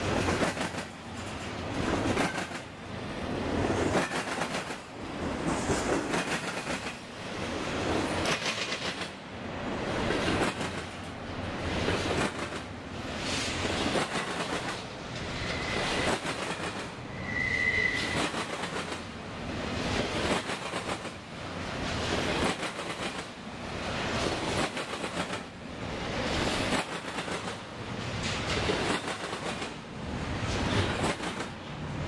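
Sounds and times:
freight train rumbling and rattling: 0:00.0 - 0:32.0
train wheel clicks: 0:00.1 - 0:02.7, 0:03.8 - 0:07.0, 0:08.0 - 0:09.2, 0:10.1 - 0:11.0, 0:11.9 - 0:12.7, 0:13.6 - 0:17.0, 0:18.0 - 0:19.1, 0:20.0 - 0:21.2, 0:22.2 - 0:23.3, 0:24.2 - 0:25.5, 0:26.4 - 0:29.8, 0:30.5 - 0:31.6
high wheel squeal: 0:17.1 - 0:18.4.

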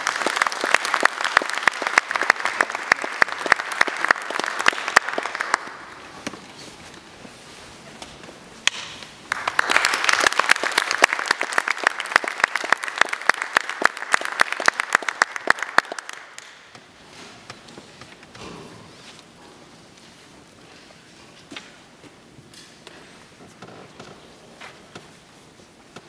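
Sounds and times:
audience applauding: 0:00.0 - 0:06.0, 0:09.3 - 0:16.8.

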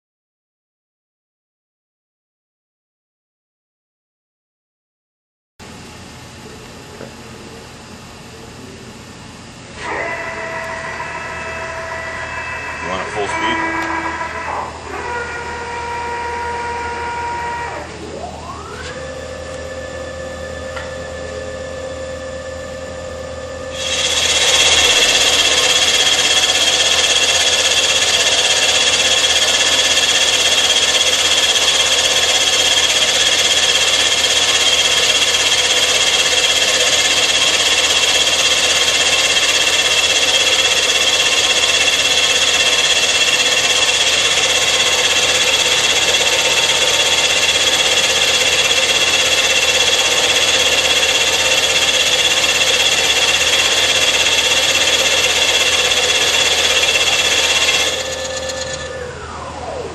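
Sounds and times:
high machine whine: 0:05.6 - 0:59.9
milling machine cutting metal: 0:09.8 - 0:19.0, 0:23.7 - 0:59.9.

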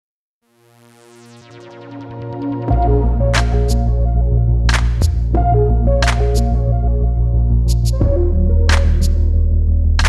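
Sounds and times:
synthesizer melody: 0:00.4 - 0:10.0
steady bass: 0:01.9 - 0:10.0.

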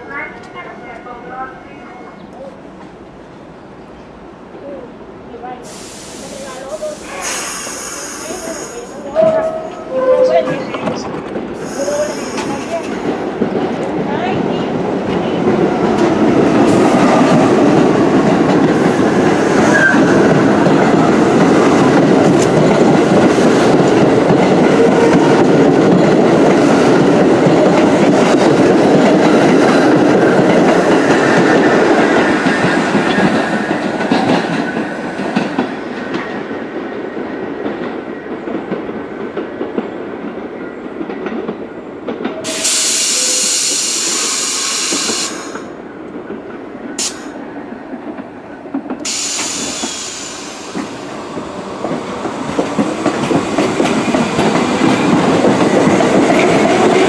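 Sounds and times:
subway train wheels on rails: 0:00.0 - 0:57.0
loud air hiss: 0:05.6 - 0:09.0, 0:11.6 - 0:12.9, 0:42.4 - 0:45.7, 0:49.0 - 0:51.3.

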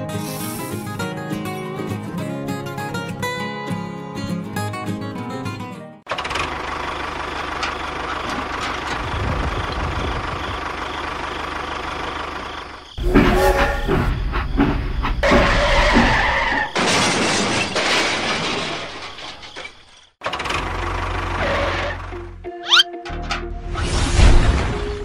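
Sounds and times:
toy train crashing into bricks: 0:15.2 - 0:20.7.

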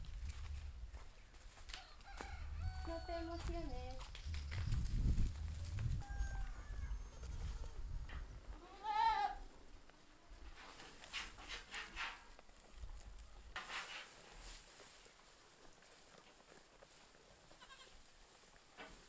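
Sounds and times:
animals chewing hay: 0:00.0 - 0:08.8, 0:09.4 - 0:19.0
sheep bleating: 0:17.6 - 0:18.0.

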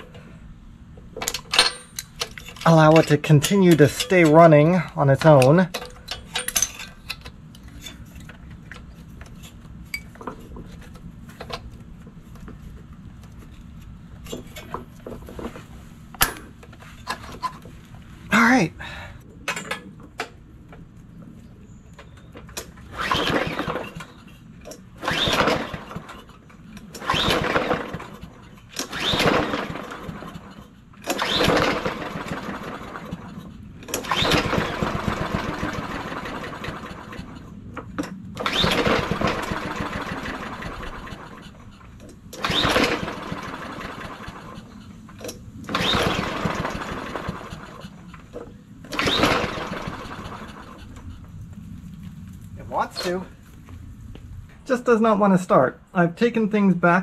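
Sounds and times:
mower recoil rope pull: 0:22.5 - 0:51.1
small engine sputtering: 0:22.9 - 0:24.2, 0:25.0 - 0:37.5, 0:38.4 - 0:51.1.

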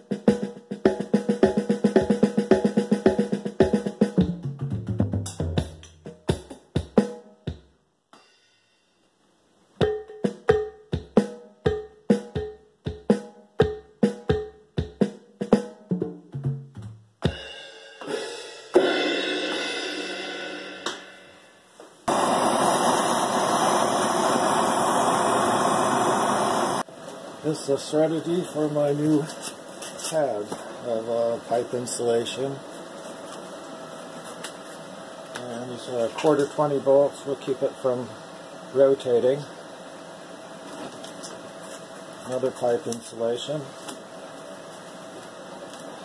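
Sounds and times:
electronic drum beat: 0:00.0 - 0:07.7, 0:09.8 - 0:21.4
gas torch hissing: 0:22.0 - 0:26.9.

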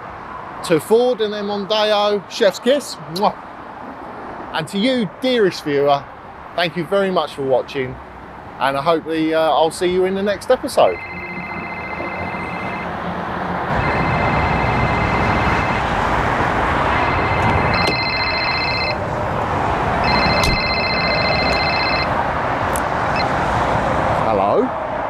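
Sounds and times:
motorway traffic noise: 0:00.0 - 0:25.0
trilling phone ringtone: 0:10.8 - 0:13.0, 0:13.7 - 0:16.0, 0:16.9 - 0:19.0, 0:20.0 - 0:22.2, 0:23.1 - 0:23.3.

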